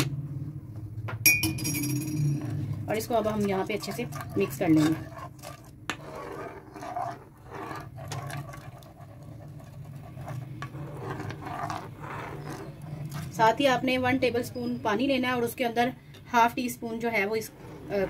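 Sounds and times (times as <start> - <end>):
metal spoon scraping a pan: 2.4 - 13.5.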